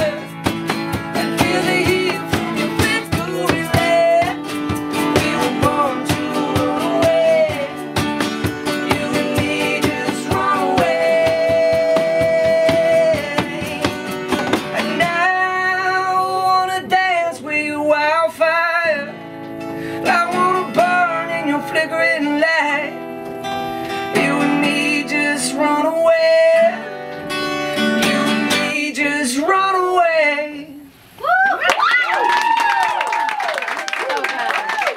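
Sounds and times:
man singing: 0.0 - 8.0, 8.6 - 19.2, 20.0 - 23.0, 24.1 - 27.0, 28.0 - 30.9
strummed acoustic guitar: 0.0 - 30.4.

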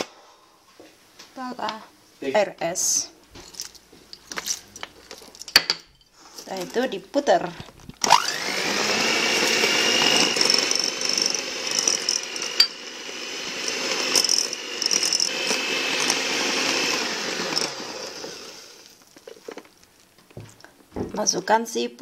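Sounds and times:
electric hand mixer motor whine: 8.0 - 19.0.

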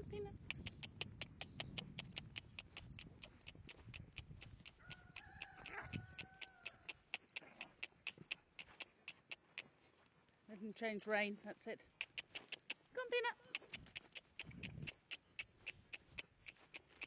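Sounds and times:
fast steady ticking: 0.1 - 9.7, 11.9 - 17.0
horse hooves cantering on grass: 0.3 - 10.4, 11.8 - 17.0
two-tone animal call: 4.8 - 7.0.

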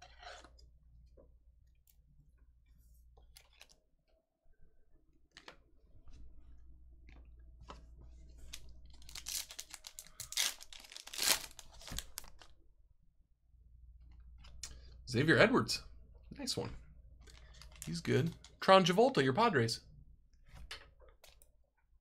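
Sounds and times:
wrapper tearing and crinkling: 8.9 - 12.5.

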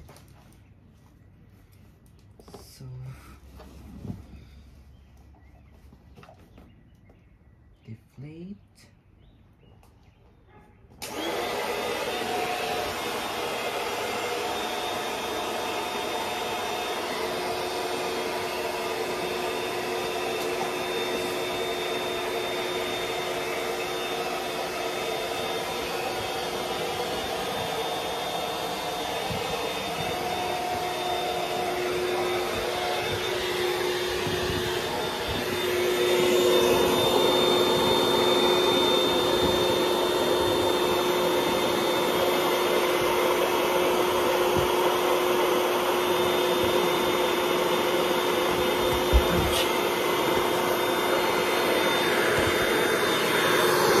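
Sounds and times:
electric air pump whining: 11.0 - 54.0.

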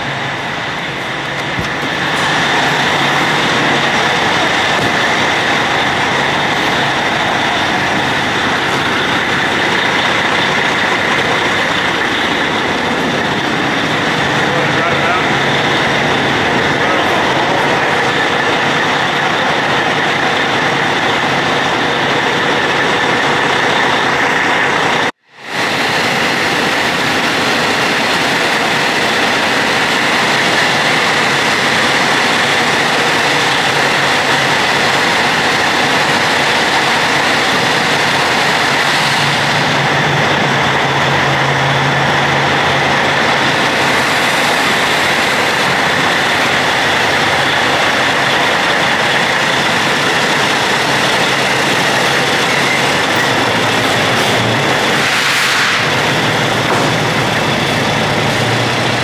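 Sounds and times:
truck engine running: 0.0 - 59.0.

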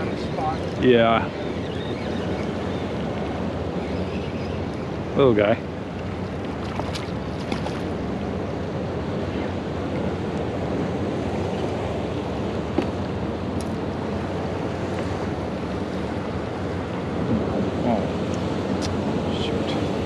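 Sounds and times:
waves lapping at boat: 0.0 - 20.0
wind noise on microphone: 0.0 - 20.0.

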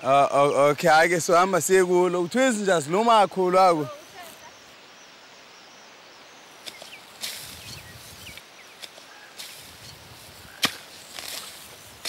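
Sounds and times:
footsteps swishing through grass: 6.5 - 12.0
sharp snap: 6.6 - 7.6, 10.6 - 11.6.

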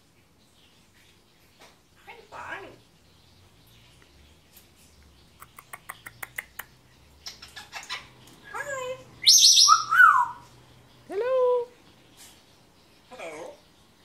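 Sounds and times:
parrot tongue clicks: 5.4 - 6.8
parrot squawk: 7.2 - 10.5
parrot chirps and whistles: 9.2 - 10.5.

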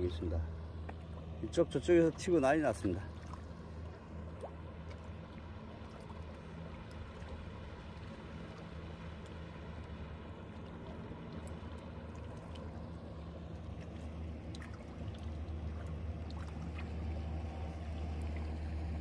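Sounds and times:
boat motor idling: 0.0 - 19.0
fish splashing at the surface: 10.6 - 18.9.

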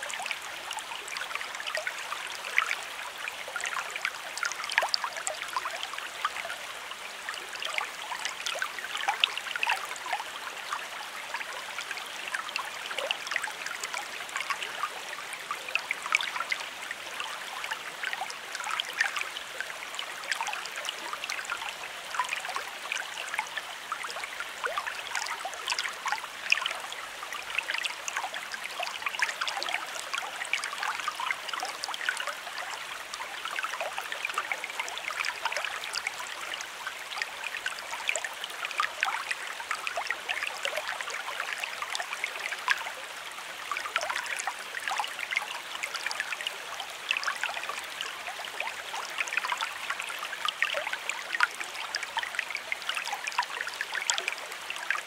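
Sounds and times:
creek babbling over stones: 0.0 - 55.0.

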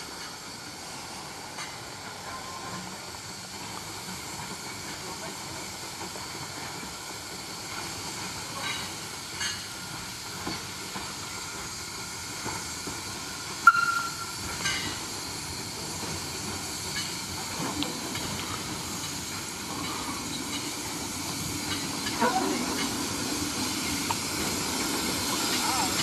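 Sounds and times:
steam hissing: 0.0 - 26.0.

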